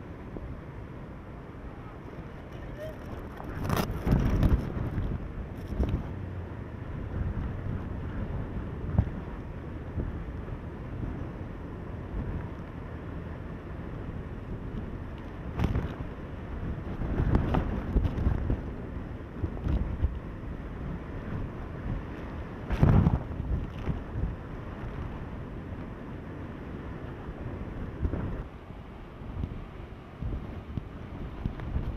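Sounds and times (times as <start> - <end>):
strong wind buffeting microphone: 0.0 - 31.9.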